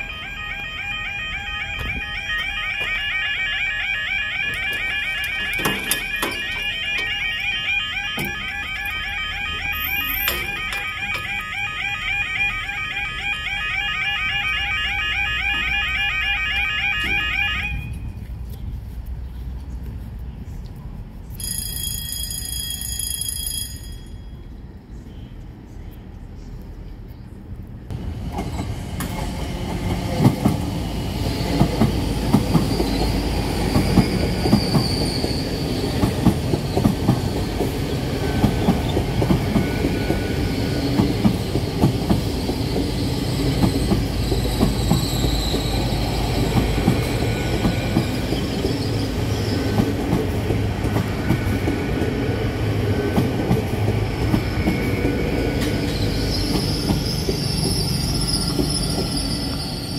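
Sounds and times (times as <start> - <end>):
train low rumble: 0.0 - 59.9
high wheel squeal: 30.8 - 49.8, 54.1 - 59.9.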